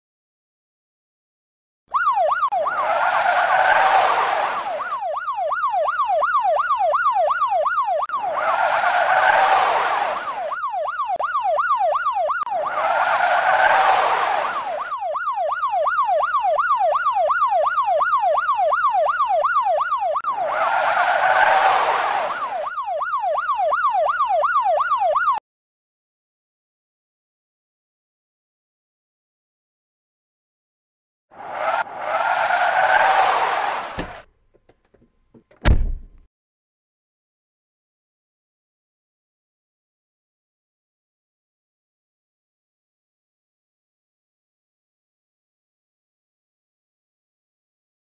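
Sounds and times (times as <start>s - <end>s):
police siren yelp: 1.9s - 25.4s, 31.4s - 34.3s
car rushing past: 31.4s - 34.3s.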